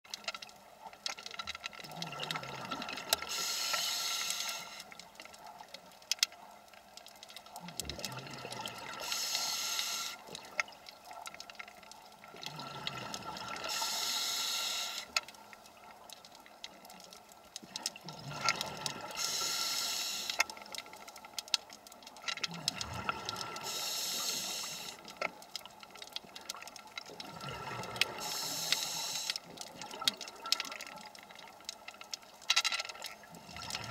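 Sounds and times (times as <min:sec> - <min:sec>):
exhaled air hissing and bubbling: 0:00.1 - 0:33.9
faint clicks and crackles: 0:00.1 - 0:33.9
diver inhaling through regulator: 0:03.3 - 0:04.9, 0:09.0 - 0:10.2, 0:13.6 - 0:15.1, 0:19.2 - 0:20.4, 0:23.6 - 0:25.0, 0:28.2 - 0:29.4.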